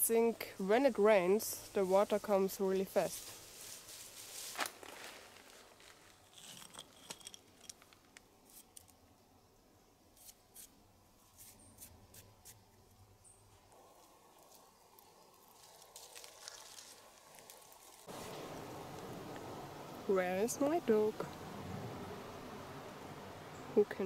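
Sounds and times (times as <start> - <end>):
pebbles clicking and shifting: 6.2 - 8.6.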